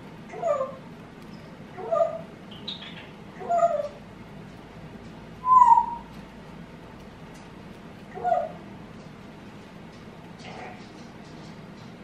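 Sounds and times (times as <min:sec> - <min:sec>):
parrot calling: 0:00.3 - 0:00.8, 0:01.7 - 0:04.0, 0:05.4 - 0:06.2, 0:08.1 - 0:08.6.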